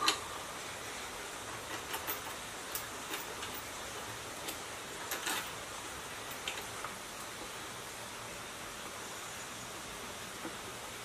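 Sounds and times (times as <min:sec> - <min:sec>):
steady background hiss: 0:00.0 - 0:11.0
small parts clicking and tapping: 0:01.6 - 0:07.4.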